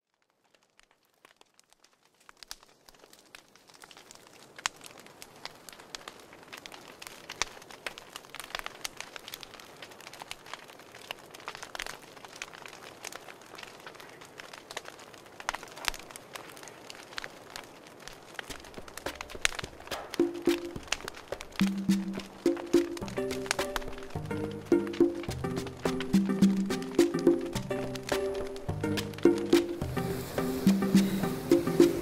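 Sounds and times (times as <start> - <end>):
campfire crackling and popping: 0.0 - 32.0
hiss of flame: 25.3 - 32.0.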